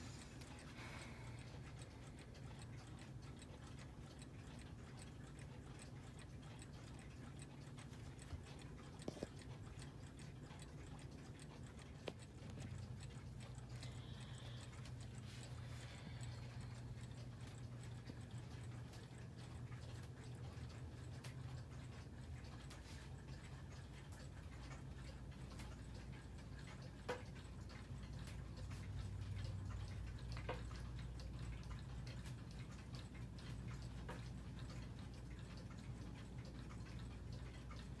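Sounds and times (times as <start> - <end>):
clocks ticking: 0.0 - 38.0
low steady hum: 0.0 - 38.0.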